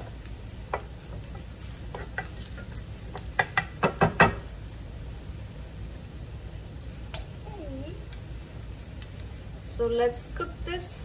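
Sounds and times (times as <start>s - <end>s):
faint sizzling: 0.0s - 11.0s
wooden spatula scraping a pan: 0.8s - 3.2s.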